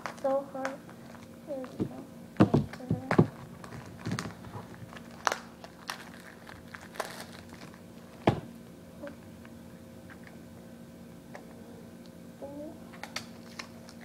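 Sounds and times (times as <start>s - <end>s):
plastic shrink wrap crinkling and tearing: 0.0s - 1.7s, 2.7s - 8.2s, 12.9s - 14.0s.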